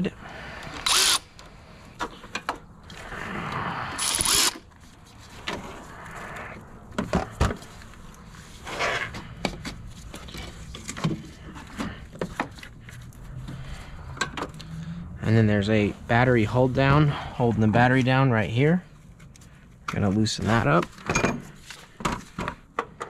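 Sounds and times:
cordless ratchet whirring: 0.7s - 1.4s, 4.0s - 4.6s.

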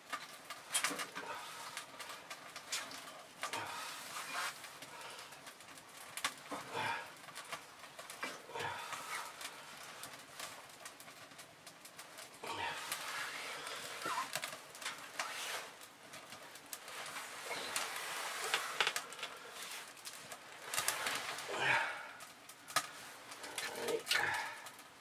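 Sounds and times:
clicks and knocks of wood: 0.0s - 3.6s, 17.1s - 19.4s
wood fire crackling: 0.0s - 25.0s.

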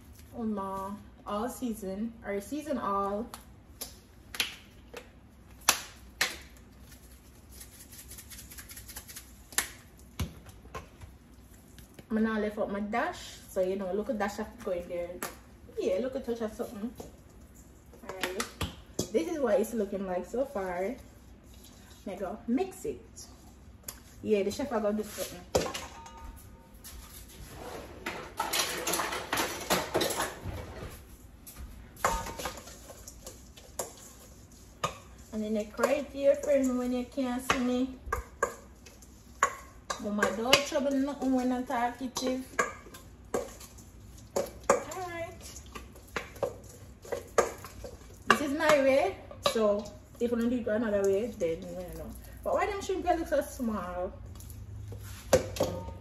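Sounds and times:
seasoning being shaken out: 6.6s - 10.0s, 32.3s - 37.5s
bowl and utensils clattering: 25.6s - 26.5s, 28.0s - 30.9s.

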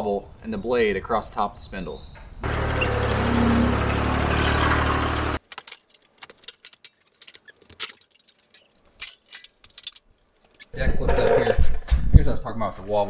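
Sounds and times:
mower engine running: 2.4s - 5.4s.

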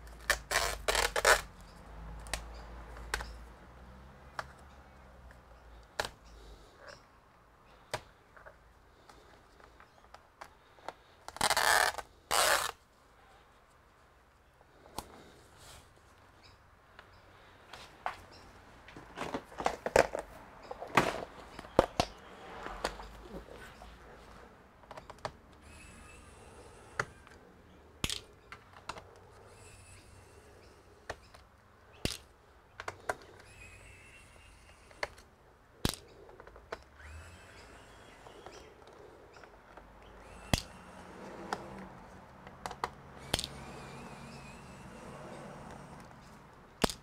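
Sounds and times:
electric screwdriver running: 25.6s - 27.4s, 37.0s - 38.6s, 40.1s - 41.8s, 43.2s - 46.1s.

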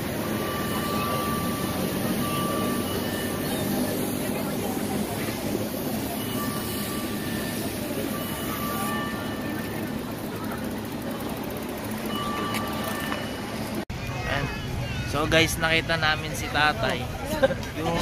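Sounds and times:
faint high whistling tone: 0.3s - 4.7s.

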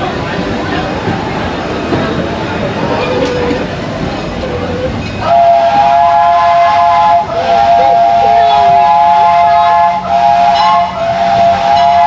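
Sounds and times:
steam locomotive chime whistle: 5.2s - 12.0s.

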